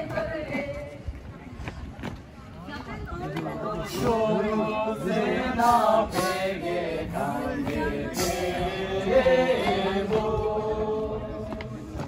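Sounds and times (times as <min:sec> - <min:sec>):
group singing folk song: 0:03.6 - 0:12.0.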